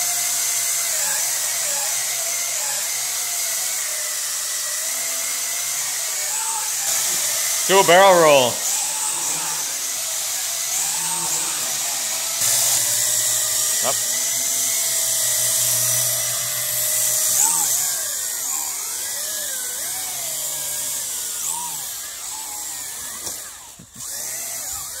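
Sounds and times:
quadcopter motors whining: 0.0s - 7.6s, 8.6s - 25.0s.

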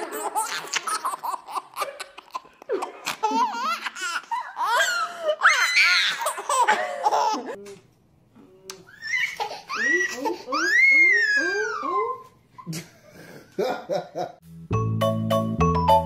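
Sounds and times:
baby laughing: 0.0s - 7.6s.

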